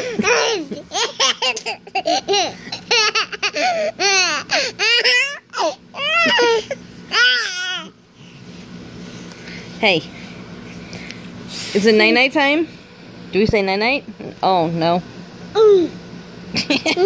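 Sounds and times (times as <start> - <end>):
young child laughing: 0.0 - 7.4, 16.5 - 17.0.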